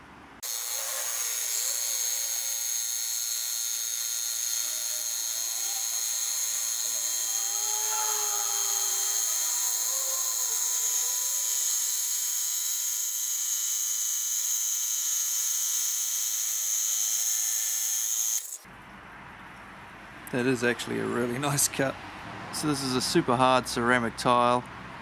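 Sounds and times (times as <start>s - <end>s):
blade grinding through tile: 0.4s - 18.6s
tile cutter motor whine: 0.4s - 18.6s.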